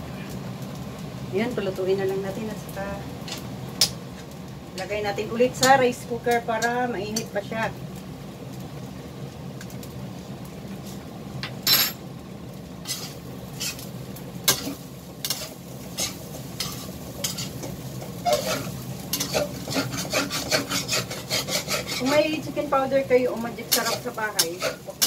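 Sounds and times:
light sizzle: 0.0 - 25.0
metal spatula scraping pan: 12.8 - 13.8, 14.5 - 22.3, 23.6 - 25.0.

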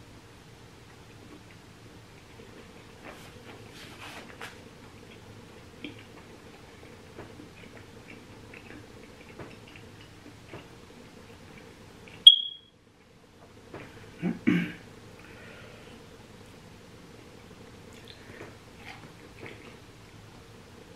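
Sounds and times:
wet chewing and mouth clicks: 4.3 - 12.2, 17.9 - 19.8
short high electronic beep: 12.3 - 12.7.

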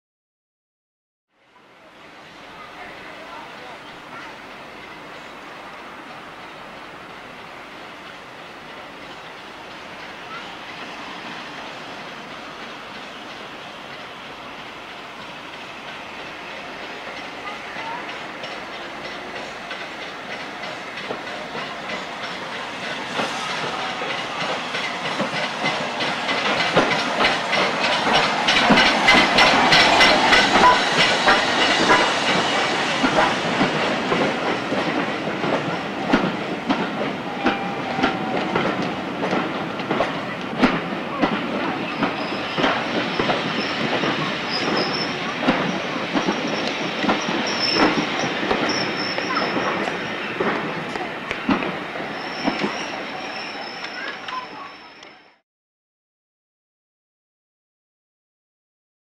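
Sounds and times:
train wheels clattering over rail joints: 15.2 - 54.5
high brake squeal: 41.9 - 49.8, 52.1 - 55.4.

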